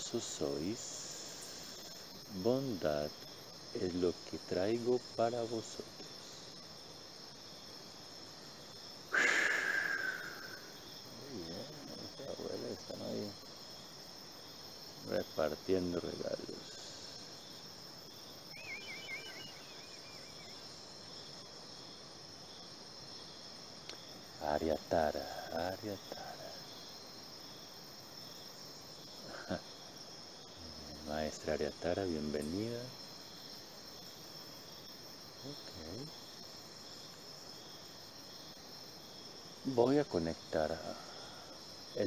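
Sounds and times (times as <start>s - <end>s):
crickets trilling: 0.0s - 42.0s
warbling chirps: 18.5s - 20.5s.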